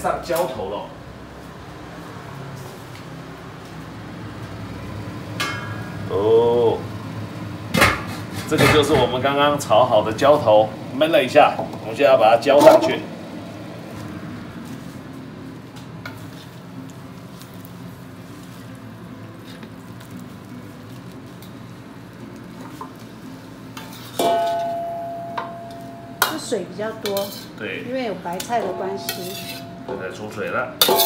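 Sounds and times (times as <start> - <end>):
metal clang ringing: 5.4 - 6.0, 24.2 - 26.5
ladle scraping wok: 16.0 - 31.0.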